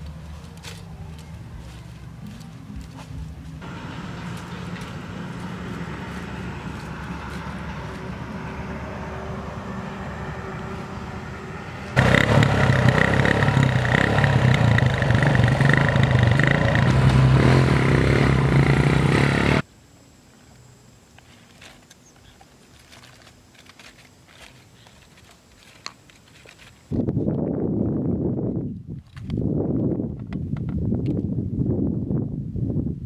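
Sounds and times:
small motorcycle engine running: 3.6 - 19.6.

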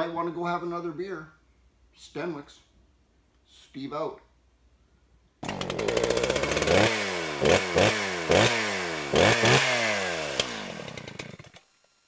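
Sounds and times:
small engine revving in blips: 5.4 - 12.0.

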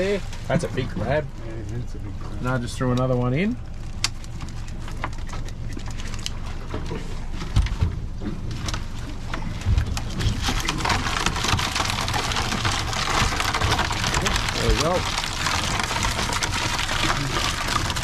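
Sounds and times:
water pattering and dripping: 0.0 - 18.0
crabs clicking against crate: 3.7 - 18.0.

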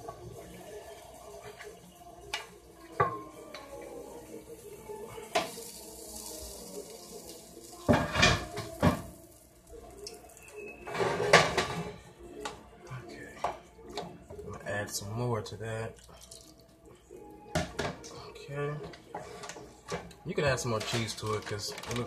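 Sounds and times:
pans knocking on stove grates: 7.9 - 9.2.

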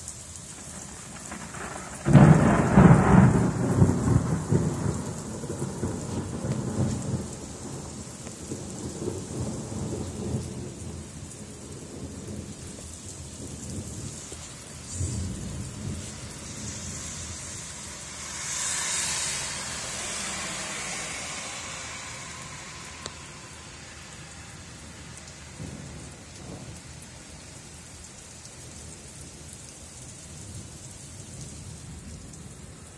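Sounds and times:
steady rain: 0.0 - 32.9
thunder rumbling: 0.6 - 28.1
hiss: 14.2 - 25.7.

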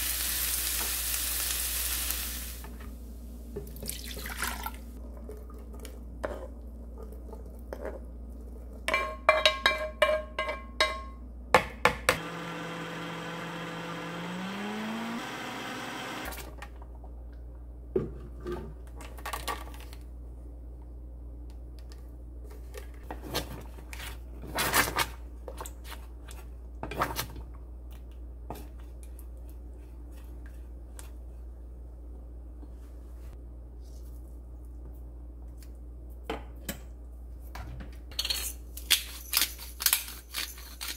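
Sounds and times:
blender motor whining: 12.2 - 16.4.

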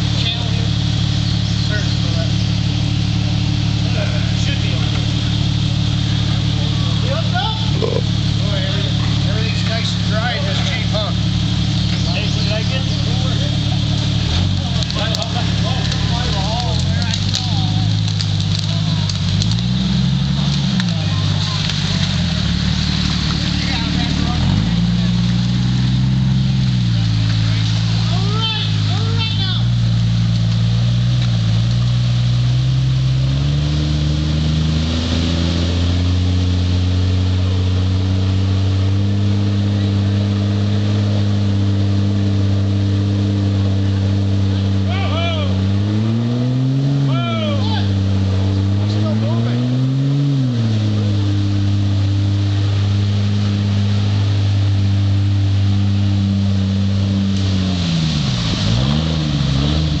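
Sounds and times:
car engine running: 0.0 - 60.0
water splashing: 2.3 - 44.9, 47.8 - 60.0
churned water hissing: 50.0 - 60.0.

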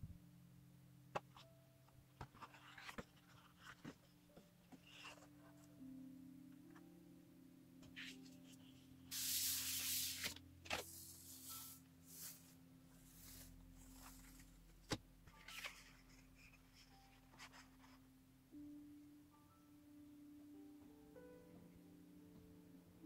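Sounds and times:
hand rubbing paper rustle: 9.1 - 14.6.

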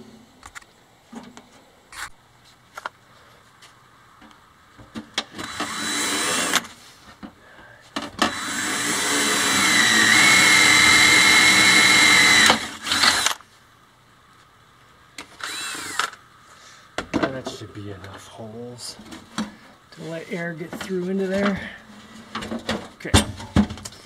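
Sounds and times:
drill boring through sheet metal: 5.4 - 6.6, 8.2 - 13.4, 15.4 - 16.1.

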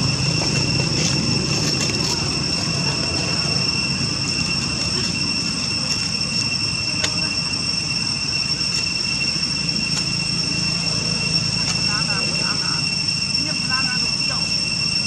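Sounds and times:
low rumble: 0.0 - 13.2
high-pitched insect drone: 0.0 - 15.0.

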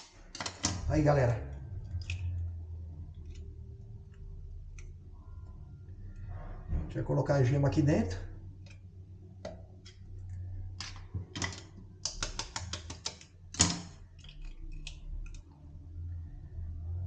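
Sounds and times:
knife tapping eggshell: 12.0 - 13.2.

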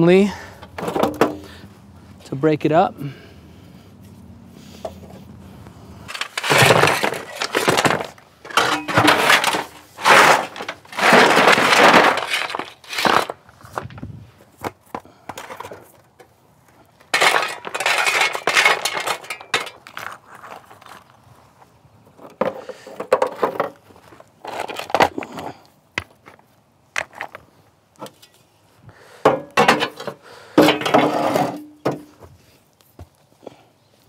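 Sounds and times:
stones clattering in metal wheelbarrow: 6.1 - 14.0, 17.0 - 21.0, 22.2 - 25.6, 29.2 - 32.2.

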